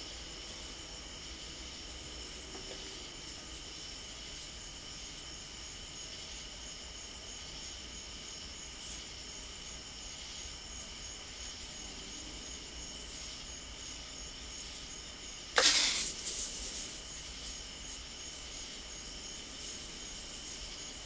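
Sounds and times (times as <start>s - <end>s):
crickets chirping: 0.0s - 21.0s
animal hissing: 15.5s - 18.2s.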